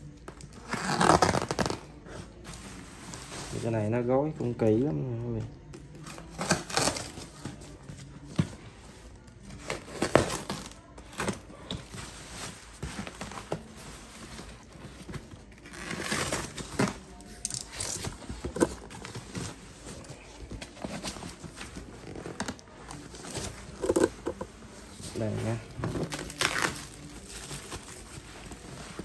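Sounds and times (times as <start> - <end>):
cardboard and tape tearing: 0.5 - 2.0, 6.2 - 7.7, 9.6 - 13.7, 15.5 - 20.0, 20.6 - 24.4, 25.2 - 29.0.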